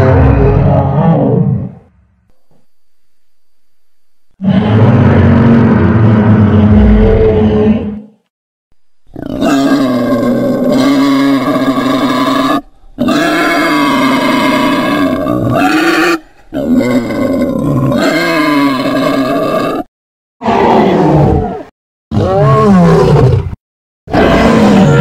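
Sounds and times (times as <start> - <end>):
monster roars: 0.0 - 1.8, 4.4 - 8.0, 16.6 - 25.0.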